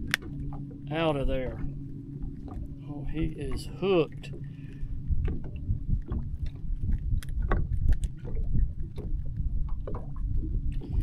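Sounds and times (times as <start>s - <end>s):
clicks and taps handling fish: 0.0s - 11.0s
water around boat: 0.0s - 11.0s
wind: 0.0s - 11.0s.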